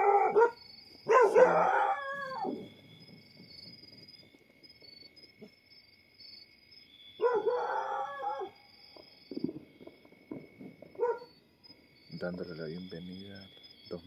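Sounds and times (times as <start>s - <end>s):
dog howling: 0.0s - 2.7s, 7.2s - 8.6s, 11.0s - 11.3s.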